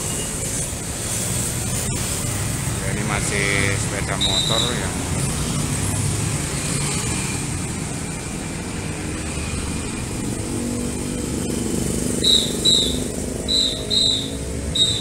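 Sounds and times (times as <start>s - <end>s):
motorcycle and car engines: 0.0s - 15.0s
road traffic passing: 0.0s - 15.0s
shrill whistle blasts: 4.1s - 4.8s, 12.2s - 15.0s.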